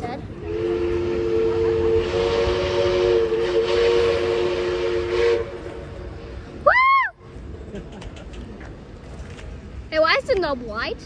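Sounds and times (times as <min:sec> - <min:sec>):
steam hissing: 0:00.4 - 0:06.4
steam locomotive whistle: 0:00.4 - 0:06.4.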